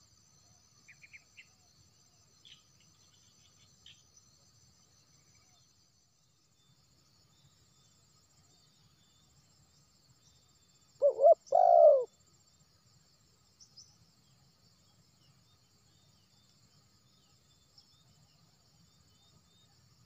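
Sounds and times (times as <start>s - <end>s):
dove cooing: 11.0s - 12.1s.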